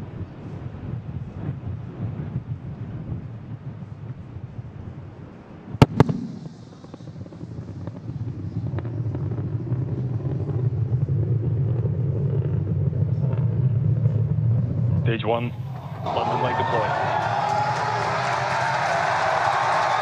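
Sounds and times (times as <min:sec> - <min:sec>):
low rocket rumble: 0:00.0 - 0:20.0
sonic boom cracks: 0:05.8 - 0:10.0.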